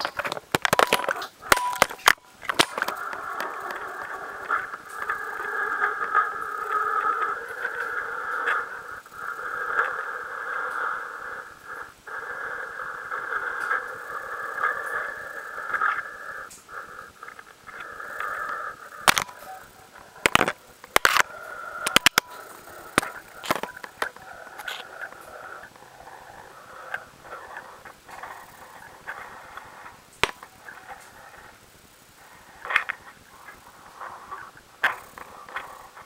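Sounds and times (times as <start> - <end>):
knocks and clatters against rock: 19.1 - 19.4, 20.2 - 21.3, 21.9 - 22.3.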